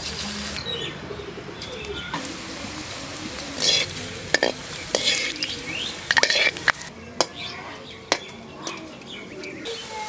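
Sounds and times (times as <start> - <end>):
fritters sizzling in hot oil: 2.2 - 6.9
skimmer scraping and clinking pan: 3.6 - 7.3.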